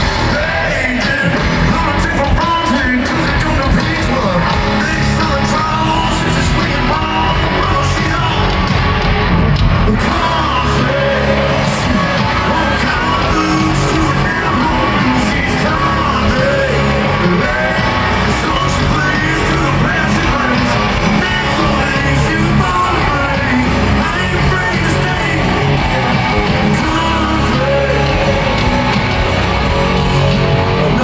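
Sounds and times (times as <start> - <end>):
crowd yelling along: 0.0 - 31.0
live country rock band: 0.0 - 31.0
person singing: 9.8 - 31.0.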